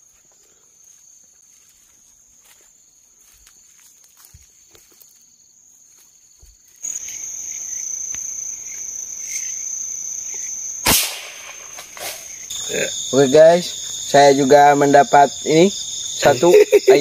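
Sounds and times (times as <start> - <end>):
crickets chirring: 0.0 - 17.0
gunshot: 10.8 - 12.3.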